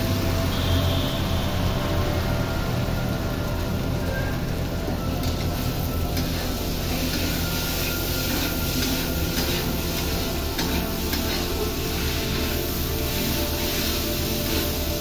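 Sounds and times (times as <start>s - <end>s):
background music: 0.0s - 15.0s
chickpeas frying: 0.0s - 15.0s
metal spatula scraping pan: 6.2s - 14.8s.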